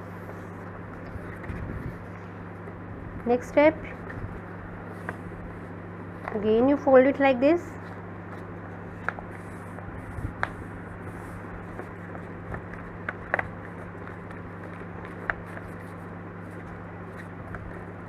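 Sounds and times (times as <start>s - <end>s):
steady low hum: 0.0s - 18.0s
paper folding and creasing: 7.8s - 17.9s
paper crinkles and taps: 8.3s - 10.6s, 11.6s - 17.8s.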